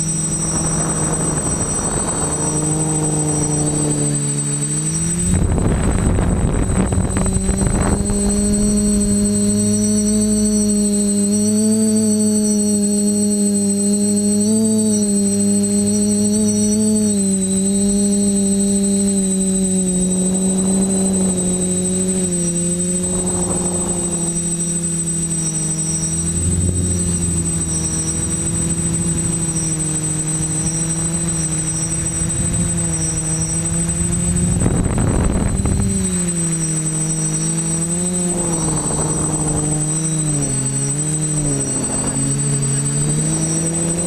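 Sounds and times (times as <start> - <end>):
wind gusts on microphone: 0.0 - 11.7, 17.5 - 44.0
quadcopter motors and propellers: 0.0 - 44.0.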